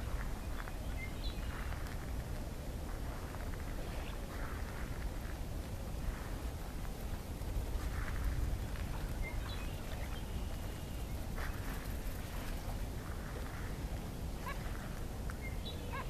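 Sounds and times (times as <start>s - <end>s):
steady low rumble: 0.0s - 16.0s
gulls calling: 14.4s - 16.0s.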